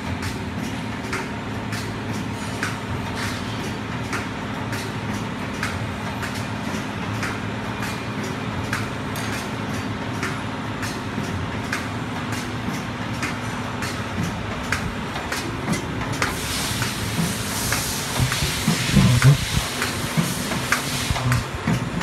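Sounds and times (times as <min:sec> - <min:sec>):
packing machine running: 0:00.0 - 0:22.0
high hiss: 0:16.4 - 0:21.4.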